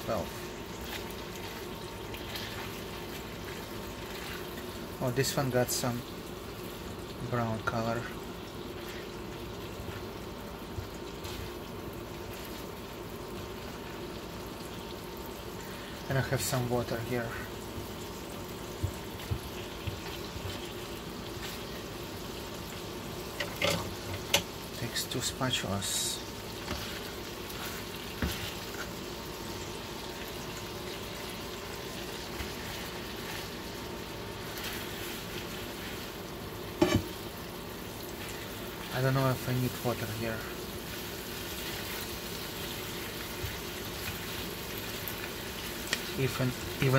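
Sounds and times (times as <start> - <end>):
meat sizzling in a skillet: 0.0 - 46.9
knock on pan: 36.8 - 37.1.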